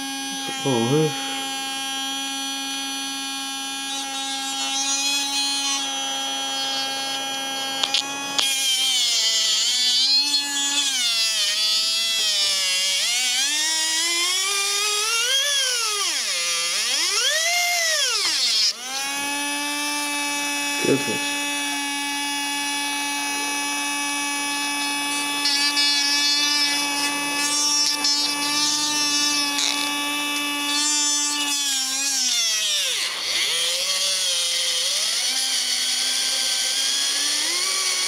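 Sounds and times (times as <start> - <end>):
small electric motor whine: 0.0 - 38.0
screwdriver clicks and scratchy crackle: 7.8 - 8.5, 25.1 - 31.7.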